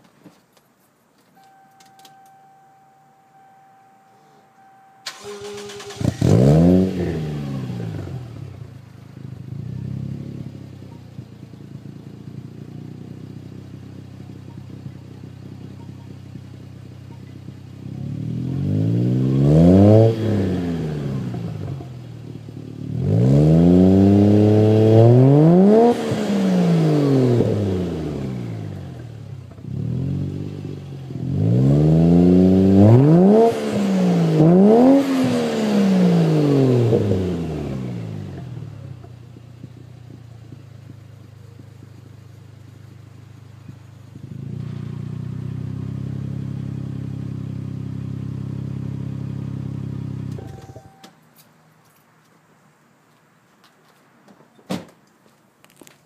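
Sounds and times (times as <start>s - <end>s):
brief steady tone: 1.4s - 5.8s, 50.4s - 51.2s
car engine starting and revving: 5.0s - 51.0s.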